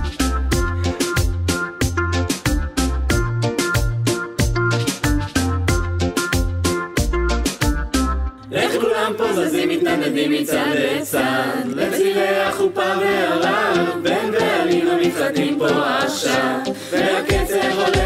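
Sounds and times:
a cappella group singing: 8.5s - 18.0s.

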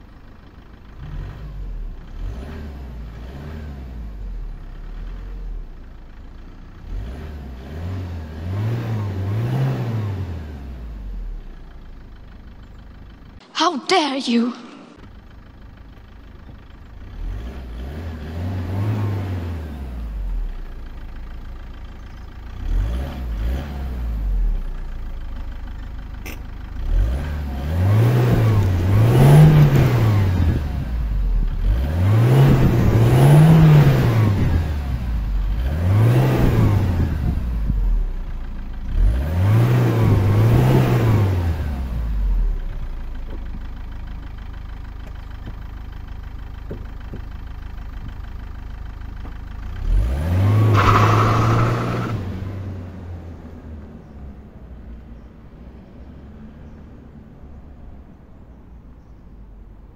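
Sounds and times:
diesel engine idling: 0.0s - 7.0s, 10.2s - 13.8s, 14.5s - 18.5s, 19.4s - 35.7s, 36.8s - 39.2s, 41.4s - 50.4s
diesel engine revving: 0.0s - 13.4s, 14.6s - 57.1s.

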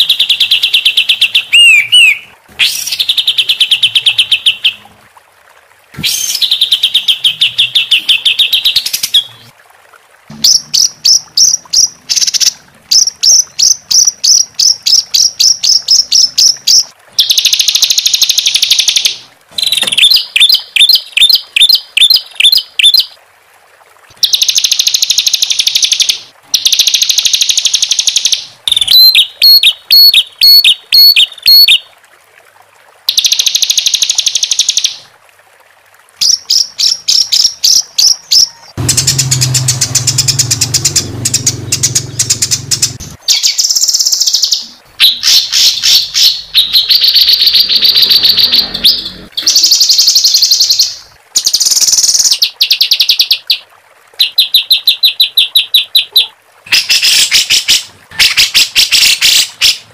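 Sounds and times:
songbird trills: 0.0s - 4.8s
low buzzing: 38.8s - 43.2s.

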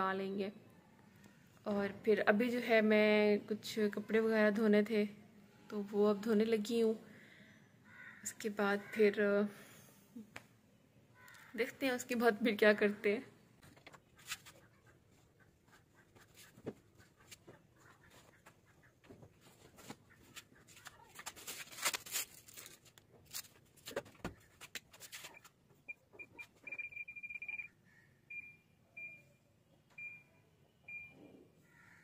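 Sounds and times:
clothes and lid rustling: 13.6s - 25.7s.

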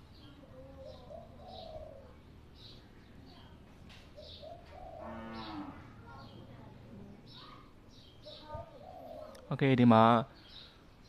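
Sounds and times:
birds chirping: 0.0s - 11.0s
cow mooing: 5.0s - 6.0s.

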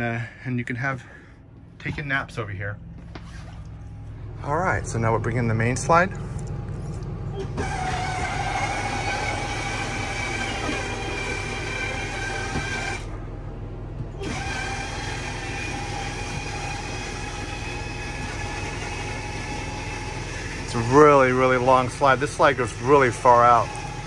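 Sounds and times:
electric motor humming and whining: 4.8s - 13.2s, 14.0s - 24.0s.

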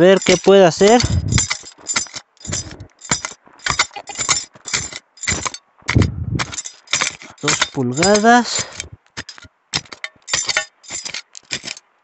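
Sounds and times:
digging tool scraping stony soil: 0.0s - 11.8s
dull thud: 2.4s - 7.6s.

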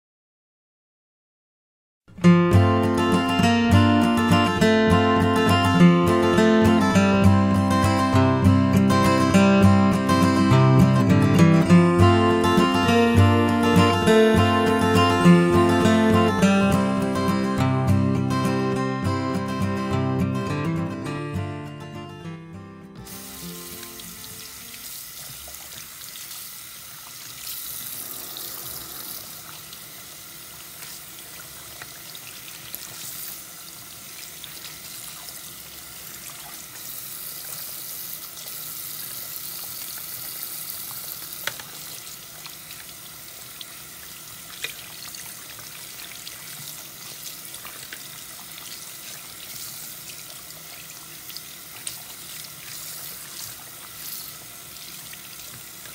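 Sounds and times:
hair rinsed by hand: 23.0s - 55.9s
tap water running into sink: 23.0s - 55.9s.

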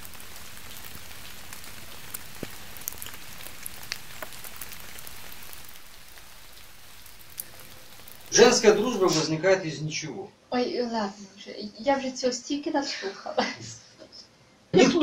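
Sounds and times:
raindrops ticking: 0.0s - 9.2s
light rain hiss: 0.0s - 15.0s.

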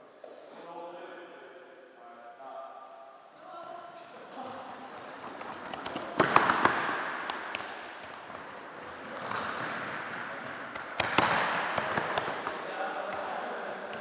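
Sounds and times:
ball kicks echoing in hall: 3.9s - 14.0s
players running on wooden floor: 4.1s - 14.0s.

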